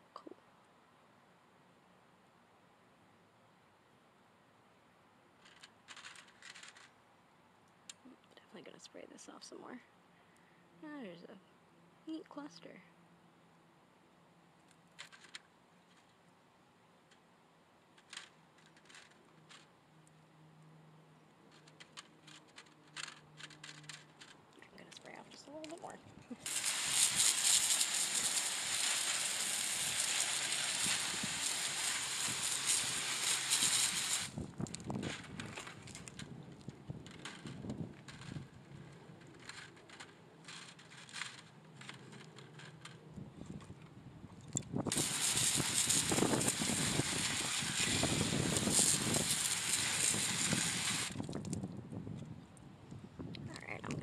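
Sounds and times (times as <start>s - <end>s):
hose spray hissing: 26.4s - 34.4s, 44.9s - 51.2s.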